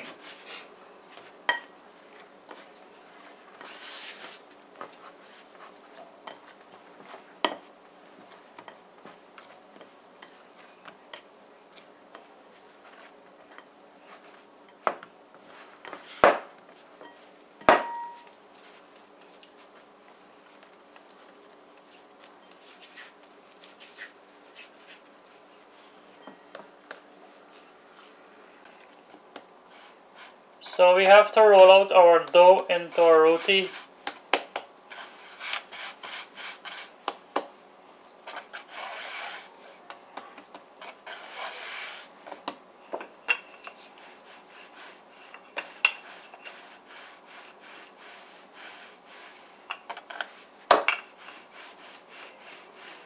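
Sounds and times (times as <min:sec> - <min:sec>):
hands kneading dough: 0:00.0 - 0:53.0
bowl knocks and clinks: 0:17.6 - 0:18.3.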